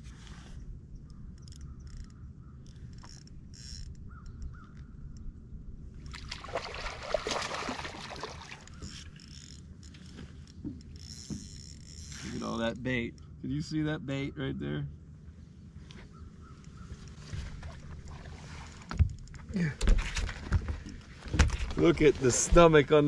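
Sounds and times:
low rumble of wind and water: 0.0s - 23.0s
fish thrashing and splashing: 6.1s - 9.4s.

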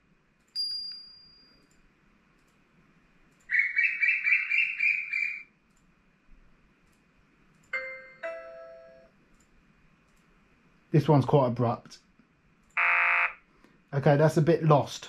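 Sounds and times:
rapid bird chirps alert: 3.5s - 5.5s
doorbell-like chime tones: 7.8s - 9.1s.

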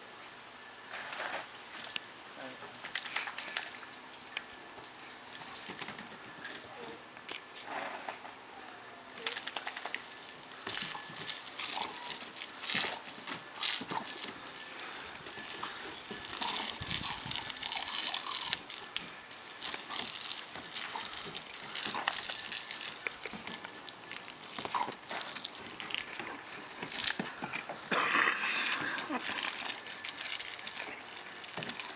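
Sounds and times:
dog snapping and lapping water: 9.2s - 14.4s, 16.1s - 31.9s.

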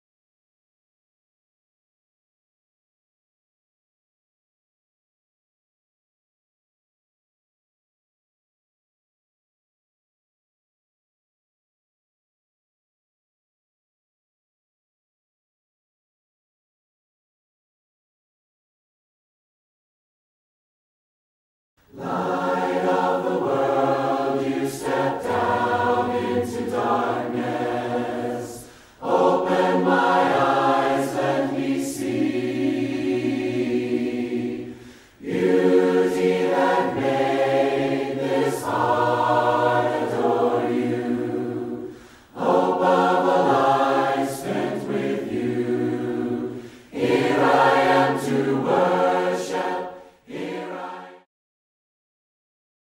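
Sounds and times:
group singing a hymn a cappella: 21.9s - 51.3s.

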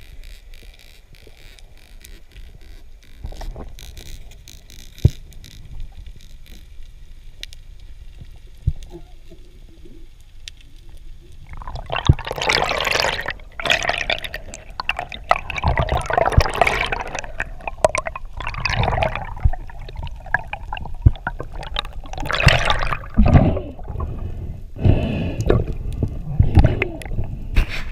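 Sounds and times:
faint underwater ticks and clicks: 0.0s - 27.9s
water rushing against camera housing: 11.5s - 24.2s.

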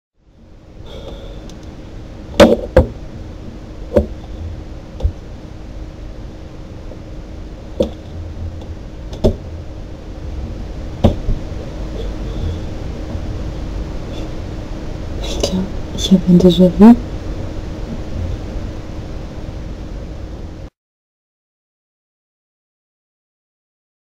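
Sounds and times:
steady low hum: 0.2s - 20.8s
sharp knocks: 2.4s - 3.0s, 11.0s - 11.4s.

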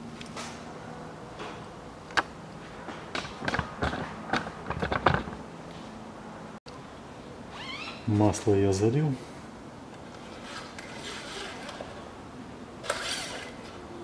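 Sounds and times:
clicks and knocks of hard objects: 2.9s - 5.4s.

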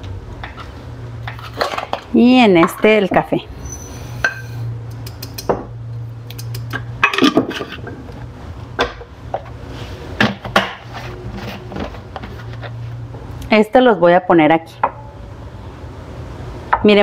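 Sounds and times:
ceramic jars clinking and knocking: 7.0s - 7.9s.

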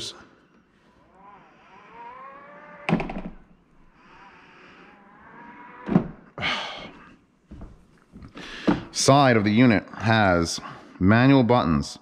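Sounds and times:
faint hinge motor whine: 0.4s - 6.2s.

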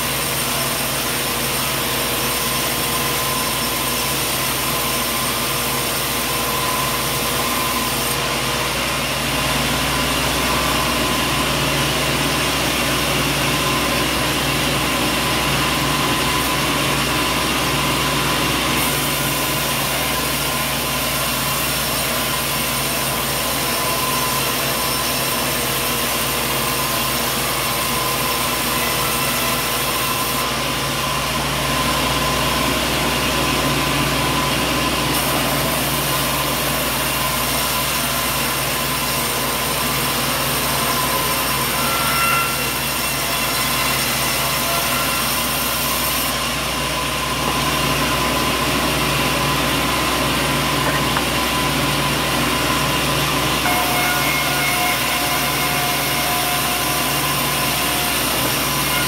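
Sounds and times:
band sawmill running: 0.0s - 59.0s.

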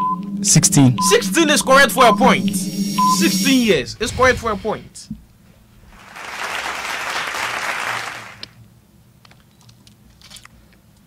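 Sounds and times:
applause: 5.9s - 8.6s.

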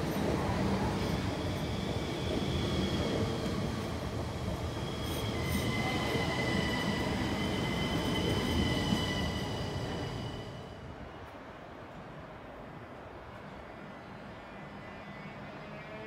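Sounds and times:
train wheels rumbling on rails: 0.0s - 10.7s.

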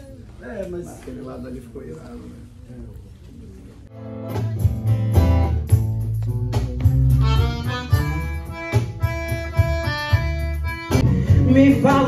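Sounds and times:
band playing: 3.9s - 12.0s
bass line: 3.9s - 12.0s.

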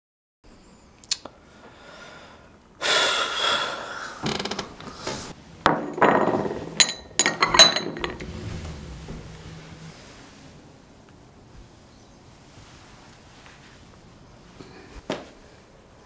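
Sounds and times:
breaths: 1.3s - 5.3s, 14.6s - 15.8s
porcelain cup clinking: 5.7s - 8.2s.

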